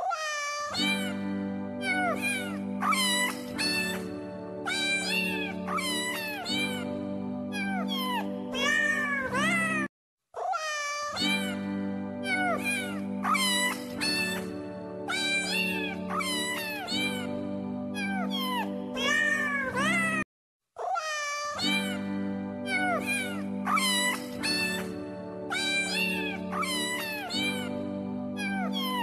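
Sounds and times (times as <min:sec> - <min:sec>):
cat meowing: 0:00.0 - 0:01.2, 0:01.8 - 0:04.0, 0:04.7 - 0:06.9, 0:07.5 - 0:11.6, 0:12.2 - 0:14.5, 0:15.1 - 0:17.3, 0:18.0 - 0:20.2, 0:20.8 - 0:22.0, 0:22.7 - 0:24.9, 0:25.5 - 0:27.7, 0:28.4 - 0:29.0
music with sustained notes: 0:00.9 - 0:09.8, 0:11.3 - 0:20.2, 0:21.7 - 0:29.0.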